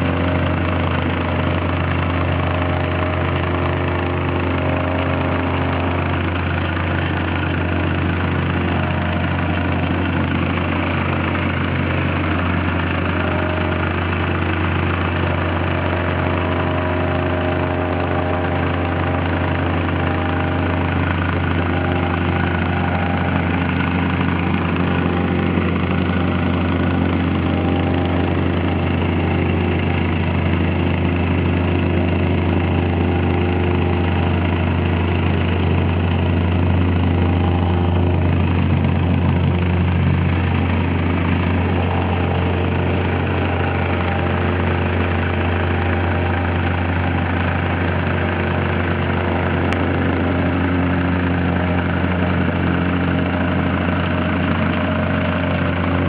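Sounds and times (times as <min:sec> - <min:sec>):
plate compactor engine running: 0:00.0 - 0:56.0.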